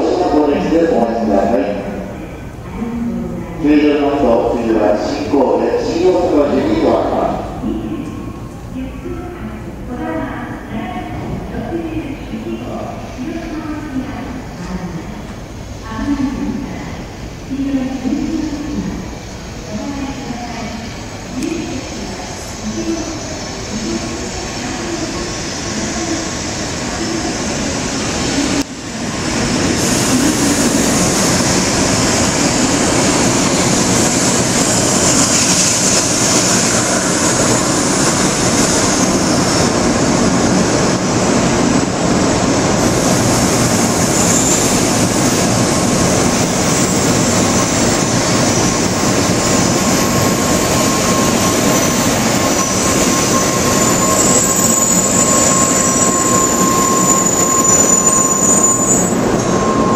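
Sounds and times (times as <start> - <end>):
train pulling into station: 0.0 - 59.9
thin high squeal: 50.6 - 59.9.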